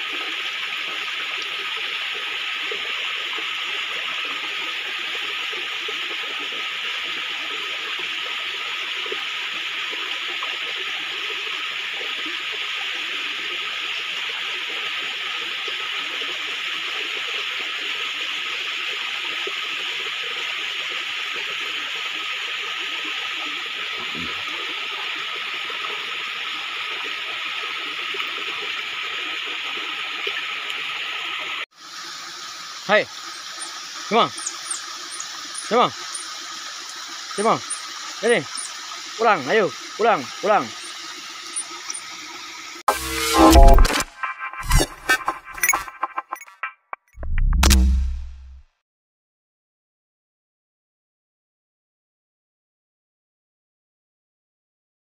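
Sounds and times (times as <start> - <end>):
stream water running over rocks: 0.0 - 42.8.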